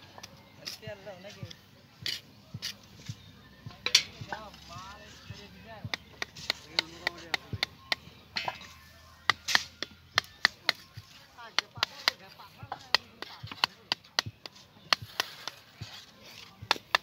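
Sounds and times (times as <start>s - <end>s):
hammer striking chisel on concrete: 3.8s - 4.5s, 5.8s - 15.7s.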